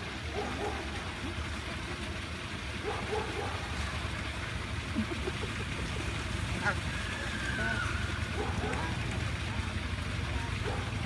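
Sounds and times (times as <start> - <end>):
waterfowl calls: 6.5 - 8.7.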